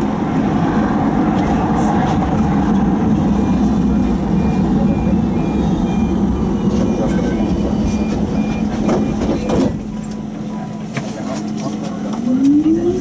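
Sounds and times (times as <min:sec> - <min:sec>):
tram running noise and hum: 0:00.0 - 0:13.0
short high beeps: 0:03.4 - 0:09.2.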